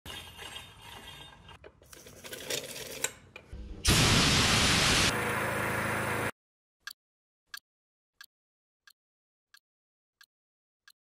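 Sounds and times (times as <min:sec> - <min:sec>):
machine hum: 0:03.8 - 0:06.3.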